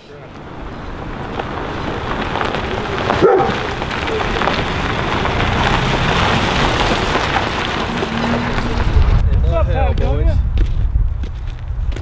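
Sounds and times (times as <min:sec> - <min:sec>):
truck engine: 0:00.0 - 0:09.2
tyres crunching on gravel: 0:00.1 - 0:12.0.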